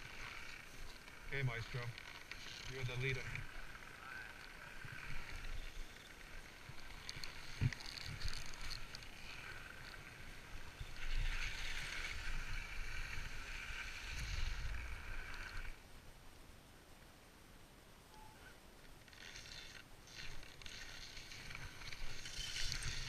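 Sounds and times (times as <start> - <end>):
skis scraping over snow: 0.0 - 15.8, 19.1 - 23.0
wind rumbling on microphone: 2.7 - 15.8.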